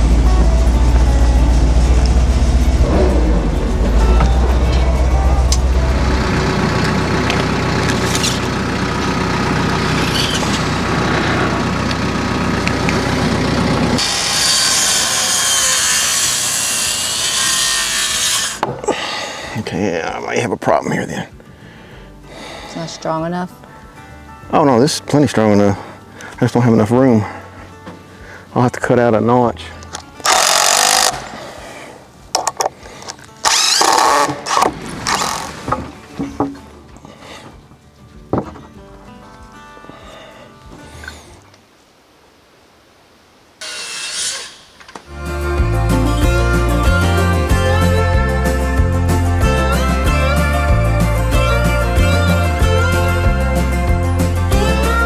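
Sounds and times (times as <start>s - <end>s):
diesel tractor engine running: 0.0s - 15.3s
power saw cutting wood: 5.5s - 18.7s, 30.2s - 31.6s, 33.4s - 35.9s, 43.6s - 45.0s.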